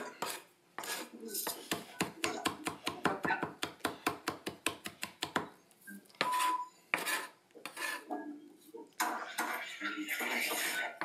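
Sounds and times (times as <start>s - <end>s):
knife scraping on board: 0.0s - 2.0s, 6.2s - 8.2s, 9.0s - 11.0s.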